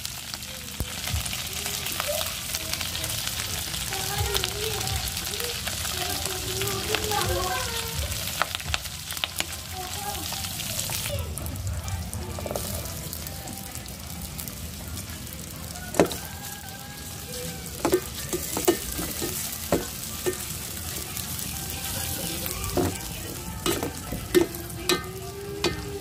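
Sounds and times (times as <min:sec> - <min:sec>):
pork sizzling in hot fat: 0:00.0 - 0:26.0.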